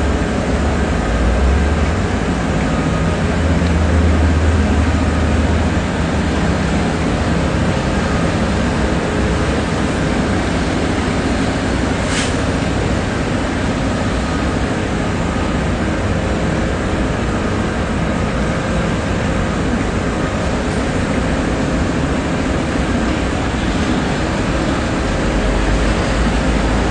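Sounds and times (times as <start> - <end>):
city street traffic: 0.0 - 26.9
diesel truck idling: 0.0 - 26.9
short hiss: 12.1 - 12.4.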